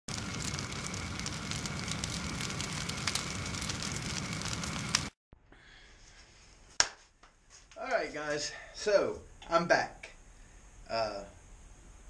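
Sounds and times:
fire crackling and popping: 0.1s - 5.2s.

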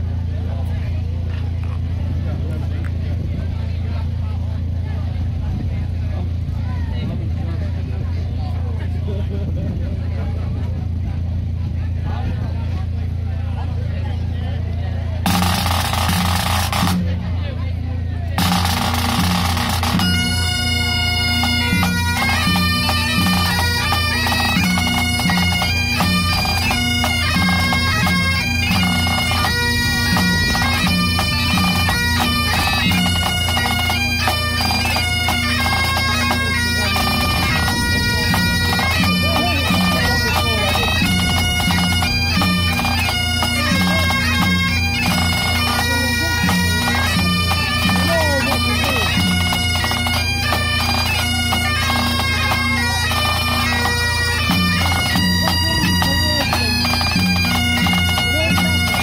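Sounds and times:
bagpipes playing a tune: 15.2s - 17.3s, 18.4s - 59.0s
bagpipe drones humming: 15.2s - 17.6s, 18.3s - 59.0s.

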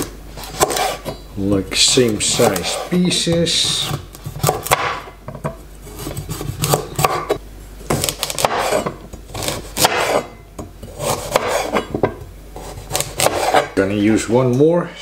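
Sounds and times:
knife chopping on wooden board: 0.0s - 1.1s, 2.3s - 10.3s, 10.9s - 13.8s.

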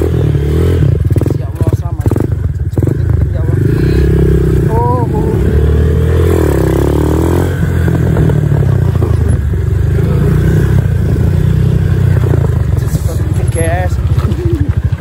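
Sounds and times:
atv engine revving: 0.0s - 15.0s.

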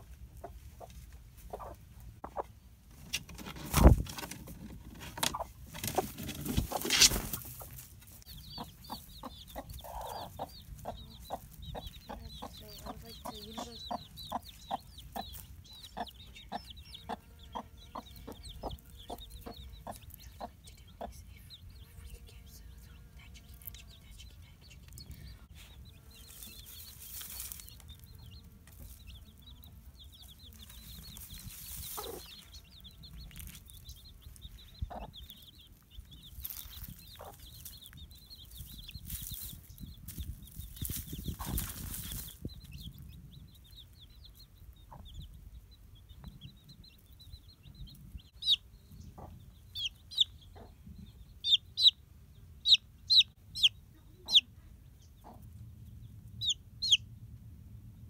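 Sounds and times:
hen clucking: 0.0s - 22.3s, 23.0s - 45.4s, 46.0s - 55.6s, 56.2s - 57.1s
chicks peeping: 0.0s - 57.3s
rustling: 26.2s - 28.1s.

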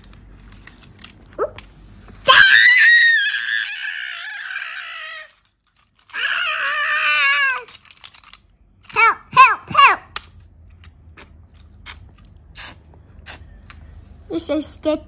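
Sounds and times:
child screaming: 2.3s - 5.3s, 6.1s - 7.7s.

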